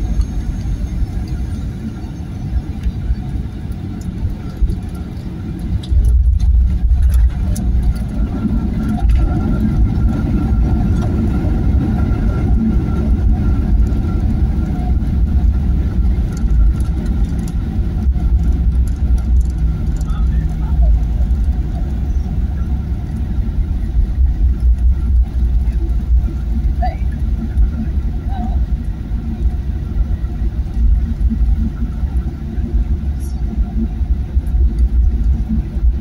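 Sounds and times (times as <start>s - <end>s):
airplane cabin rumble: 0.0s - 36.0s
thin steady whine: 0.0s - 36.0s.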